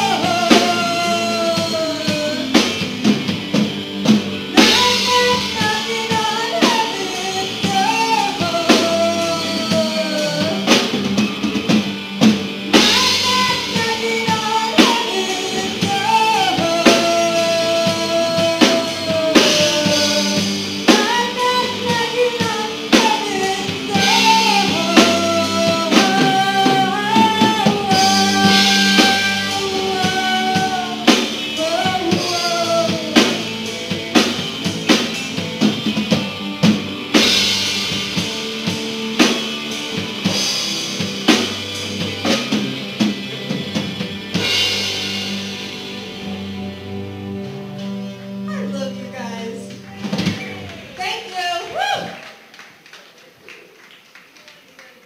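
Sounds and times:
person singing into microphone: 0.0s - 2.8s, 4.5s - 11.0s, 12.8s - 33.8s
rock band playing: 0.0s - 52.9s.

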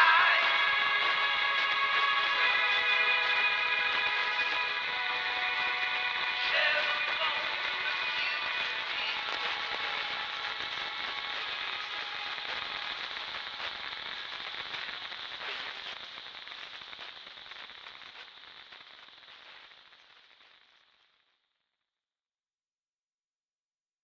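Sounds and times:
rock music: 0.0s - 10.3s
crackling record static: 0.0s - 21.8s.

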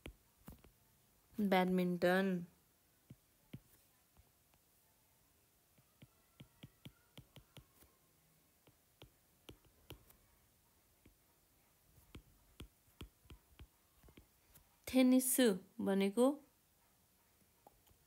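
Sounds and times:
stylus tapping on glass screen: 5.9s - 7.9s, 8.7s - 10.2s, 12.1s - 14.3s.

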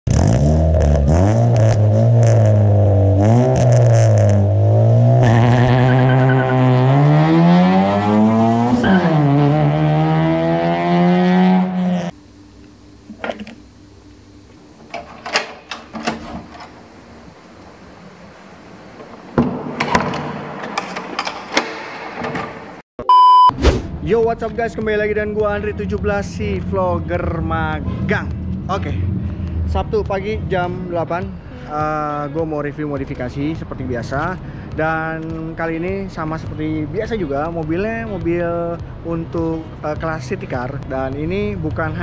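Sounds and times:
car engine revving: 0.1s - 12.2s
door lever clicks and knocks: 14.9s - 16.7s, 19.4s - 22.8s.

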